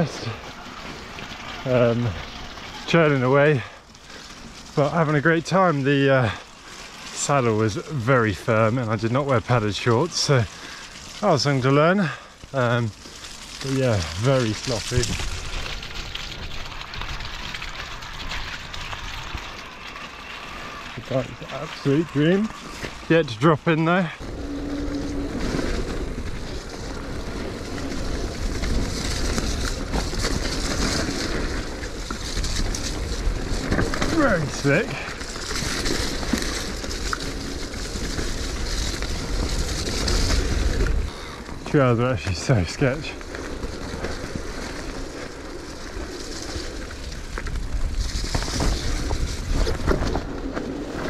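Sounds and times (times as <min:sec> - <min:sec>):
tyres churning through mud: 0:00.0 - 0:51.0
low rumble: 0:13.6 - 0:45.8.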